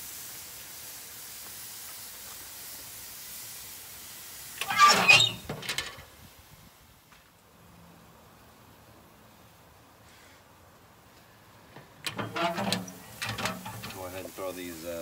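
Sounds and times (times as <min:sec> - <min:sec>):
chicken sizzling on grill: 0:00.0 - 0:06.9, 0:11.4 - 0:15.0
metal grill lid clattering shut: 0:11.8 - 0:14.0
small metal clank: 0:11.8 - 0:14.0.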